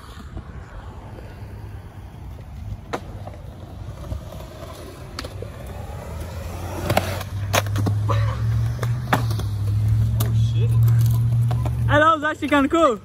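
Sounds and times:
skateboard wheels rolling on concrete: 0:00.0 - 0:13.0
skateboard clacking over joints: 0:02.3 - 0:11.9.

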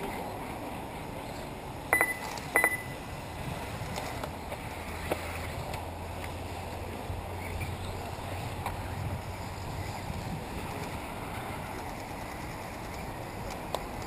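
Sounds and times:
short high-pitched beeps: 0:01.9 - 0:03.0.

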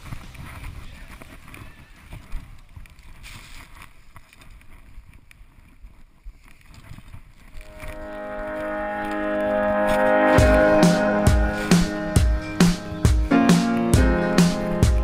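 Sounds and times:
wind and snow rumble: 0:00.0 - 0:15.0
music: 0:07.7 - 0:15.0.

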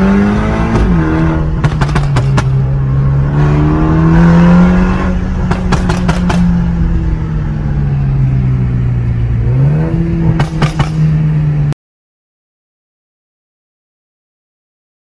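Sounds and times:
car engine revving in cabin: 0:00.0 - 0:11.7
exhaust pops crackling: 0:01.5 - 0:02.7, 0:05.4 - 0:06.7.

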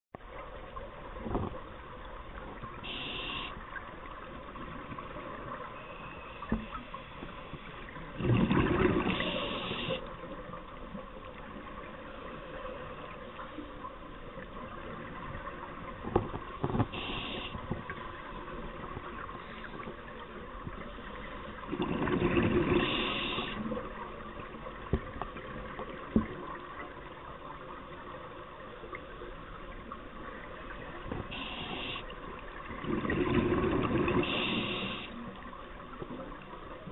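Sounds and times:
steady underwater hiss: 0:00.2 - 0:36.9
regulator breath hisses: 0:02.9 - 0:03.6, 0:09.2 - 0:10.0, 0:17.0 - 0:17.6, 0:22.8 - 0:23.6, 0:31.3 - 0:32.0, 0:34.2 - 0:35.2
exhaled bubbles gushing: 0:07.9 - 0:10.0, 0:21.4 - 0:27.0, 0:30.2 - 0:35.1.

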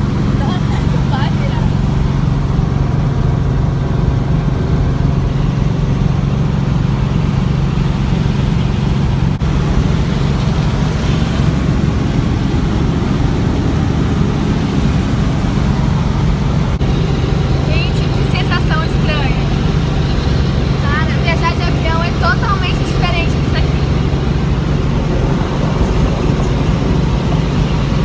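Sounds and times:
helicopter engine and rotor drone: 0:00.0 - 0:28.0.

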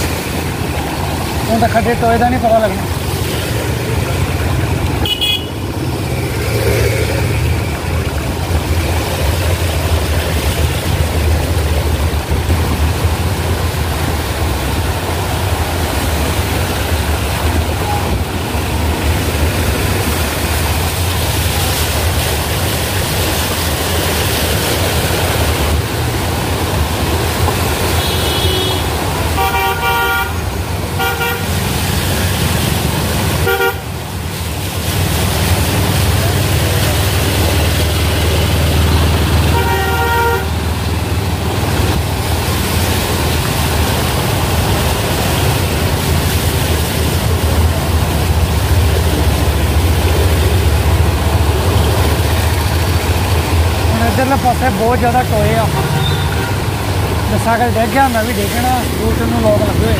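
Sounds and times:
road traffic noise: 0:00.0 - 0:59.9
vehicle horns honking: 0:05.0 - 0:05.6, 0:27.9 - 0:31.6, 0:33.4 - 0:33.9, 0:39.4 - 0:40.6, 0:55.7 - 0:56.8.

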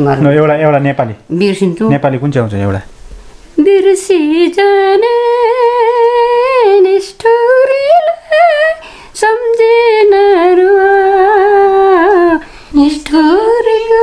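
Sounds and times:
elderly woman singing: 0:03.6 - 0:14.0.

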